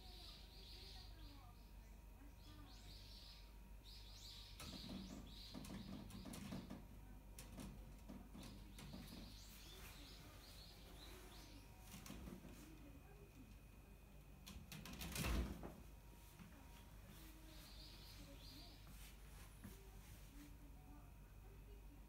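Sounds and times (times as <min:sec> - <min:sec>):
small birds chirping: 0:00.0 - 0:13.5, 0:16.5 - 0:21.0
claws rattling on window screen: 0:04.6 - 0:10.1, 0:14.4 - 0:15.8.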